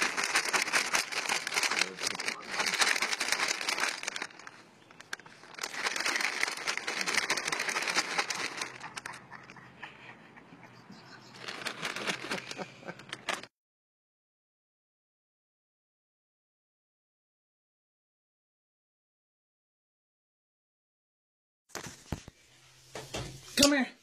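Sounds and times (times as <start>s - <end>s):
crackling rustling on microphone: 0.0s - 9.6s, 11.2s - 13.5s, 21.7s - 22.5s.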